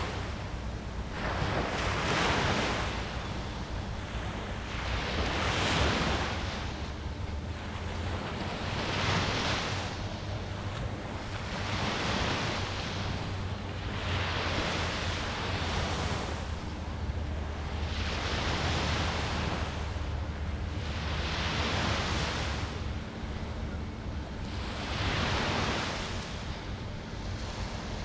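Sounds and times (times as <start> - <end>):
small waves breaking on sand: 0.0 - 28.0
wind rumble on microphone: 0.0 - 28.0.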